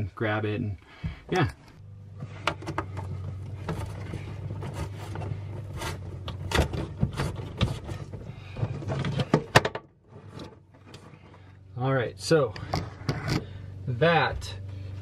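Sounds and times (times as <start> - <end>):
steady low hum: 0.0 - 15.0
cable scraping against wiring: 2.2 - 11.5.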